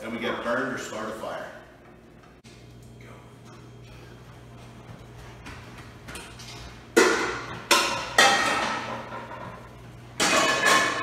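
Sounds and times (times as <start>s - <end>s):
metal pots clanging on a range: 6.2s - 11.0s.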